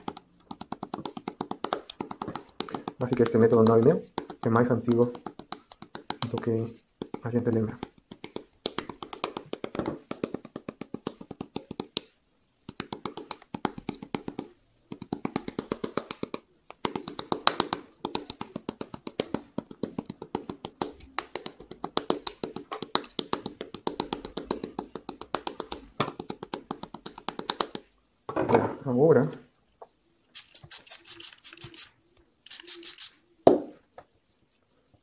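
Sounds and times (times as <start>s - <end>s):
wooden paddle tapping wet clay: 0.0s - 27.9s.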